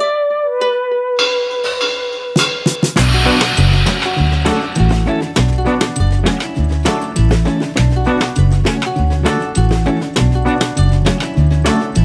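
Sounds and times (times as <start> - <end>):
upbeat music with bouncing bass: 1.2 - 12.0.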